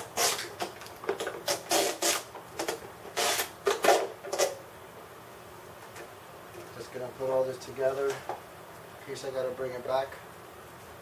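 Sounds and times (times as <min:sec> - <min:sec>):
knife scraping plastic packaging: 0:00.0 - 0:00.8, 0:01.4 - 0:04.6.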